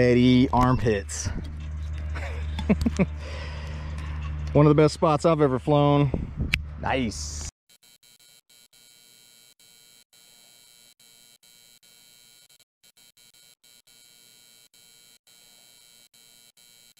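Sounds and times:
light hum: 0.0s - 7.5s.

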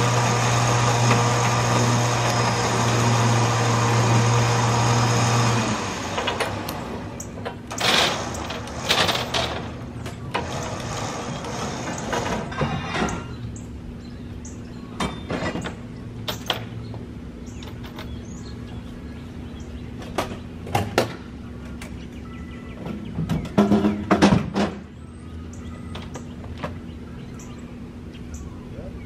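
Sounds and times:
knocks and clanks: 7.4s - 13.5s, 22.8s - 24.9s.

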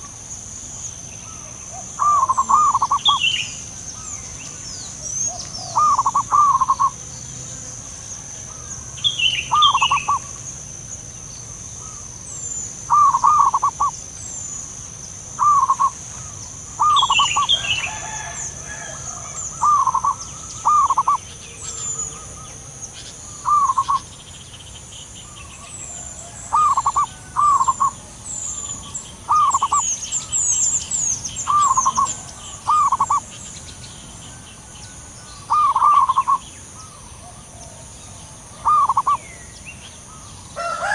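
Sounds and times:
doves cooing: 1.2s - 10.4s, 12.8s - 14.0s, 14.6s - 24.1s, 25.4s - 33.3s, 34.4s - 39.2s
high chirps: 26.5s - 33.4s, 38.6s - 39.2s.

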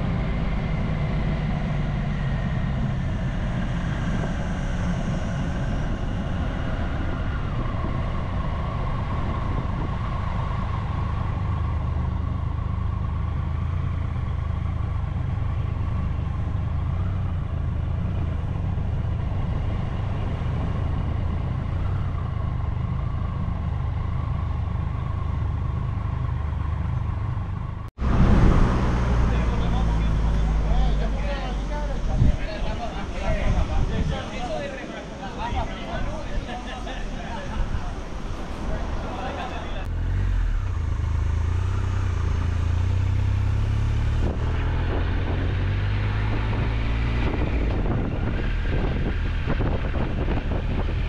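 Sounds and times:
motorcycle engine at low speed: 0.0s - 31.4s, 39.9s - 51.0s.

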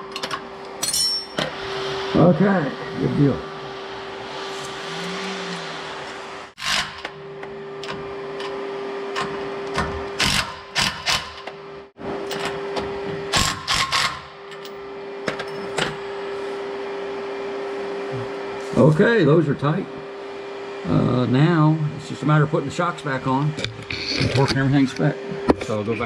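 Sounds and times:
steady hum: 16.0s - 26.0s.

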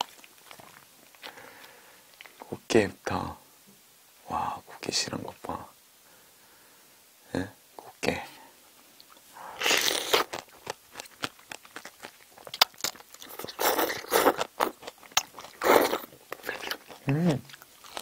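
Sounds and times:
wet chewing and crunching: 0.0s - 2.4s, 9.0s - 18.0s.

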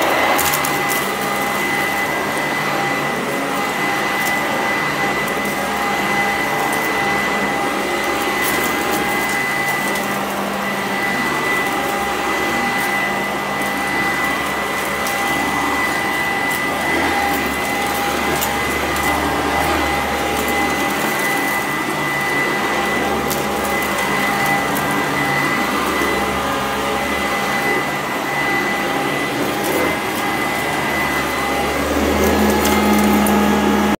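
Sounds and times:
vacuum cleaner motor whine: 0.0s - 34.0s.

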